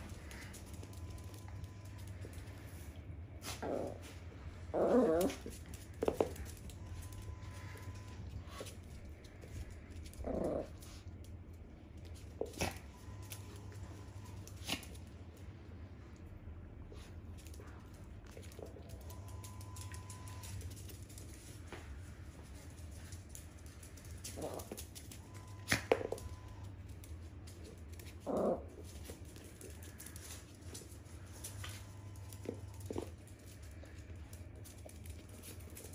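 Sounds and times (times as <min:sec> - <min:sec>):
dog paws scuffling on floor: 0:00.0 - 0:16.3, 0:16.9 - 0:35.9
small dog growling: 0:03.5 - 0:05.4, 0:10.2 - 0:10.8, 0:28.2 - 0:28.7.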